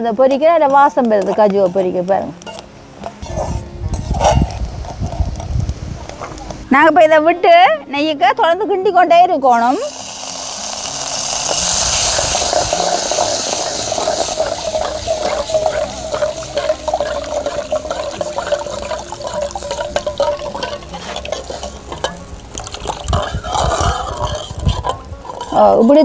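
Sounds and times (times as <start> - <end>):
metal ladle clinking and scraping: 0.8 - 5.2, 11.9 - 25.9
liquid hissing in hot pan: 9.6 - 25.5.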